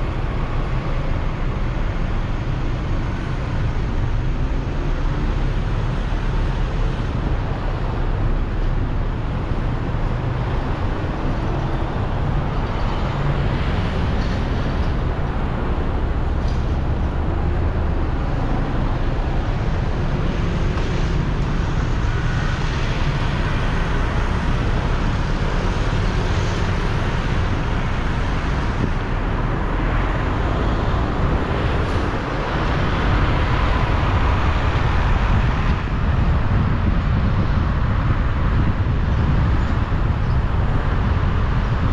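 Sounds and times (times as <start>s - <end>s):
road traffic rumble and hiss: 0.0s - 41.9s.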